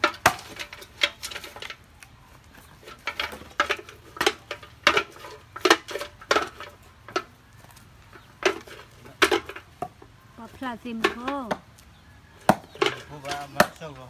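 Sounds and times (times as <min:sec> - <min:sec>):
metal cooking pot clanking: 0:00.0 - 0:01.8, 0:02.7 - 0:07.4, 0:08.1 - 0:10.0, 0:10.8 - 0:11.6, 0:12.4 - 0:13.8.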